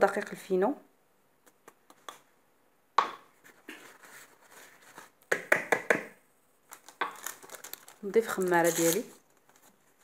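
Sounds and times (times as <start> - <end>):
soft rustle: 3.4 - 5.2.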